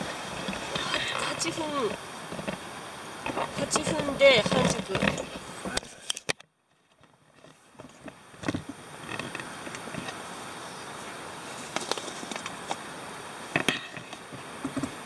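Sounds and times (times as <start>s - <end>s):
stove flame hissing: 7.6s - 15.0s.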